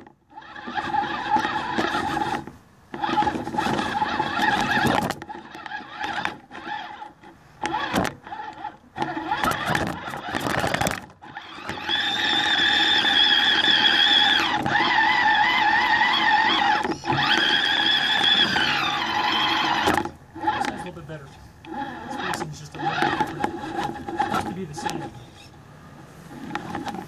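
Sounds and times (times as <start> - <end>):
electric motor whining: 0.0 - 25.6.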